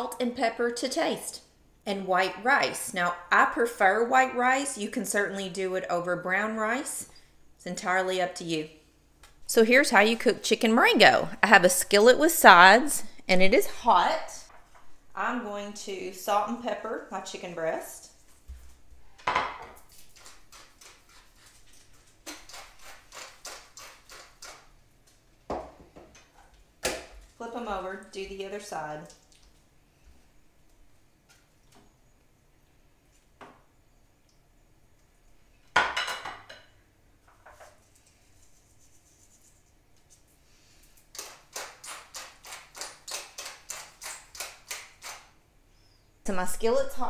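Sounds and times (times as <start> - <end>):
pepper mill grinding: 19.9 - 24.7.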